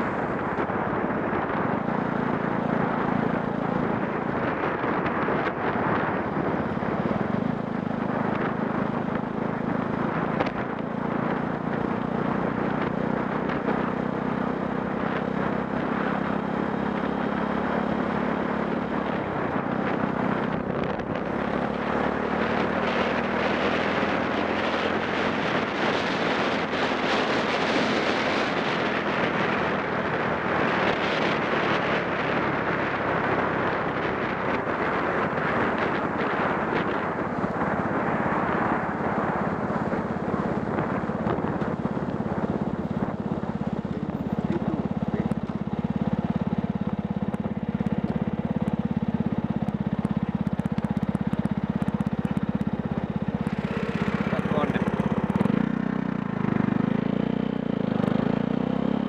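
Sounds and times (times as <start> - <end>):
motorcycle engine running: 0.0 - 59.0
wind rushing over microphone: 0.0 - 59.0.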